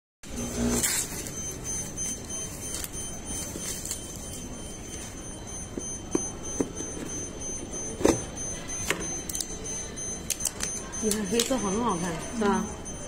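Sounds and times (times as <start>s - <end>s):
room noise: 0.2s - 13.0s.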